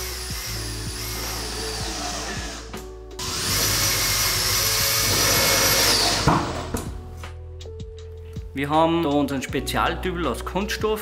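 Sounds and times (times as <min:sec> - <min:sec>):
cordless drill driving a screw: 0:00.0 - 0:06.7.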